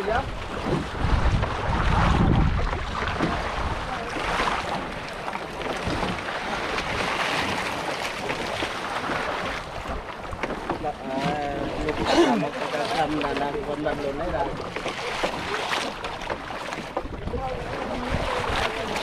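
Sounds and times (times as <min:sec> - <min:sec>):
wind on microphone: 0:00.0 - 0:07.7, 0:17.0 - 0:19.0
sea water sloshing and splashing: 0:00.0 - 0:19.0.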